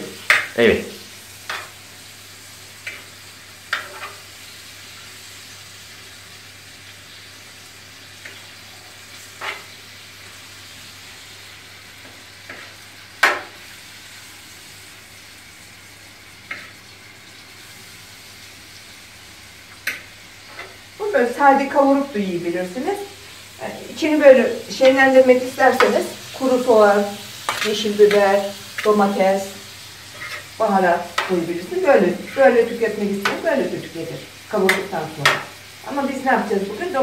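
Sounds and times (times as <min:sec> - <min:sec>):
meat sizzling in a pan: 0:00.0 - 0:37.0.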